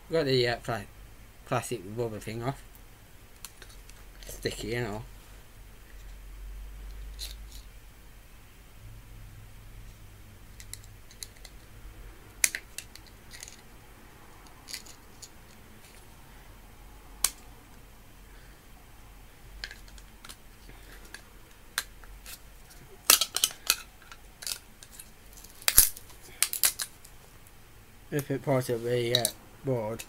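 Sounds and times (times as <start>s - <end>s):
hand tool clicking and snapping plastic: 23.0s - 25.0s, 25.6s - 26.9s.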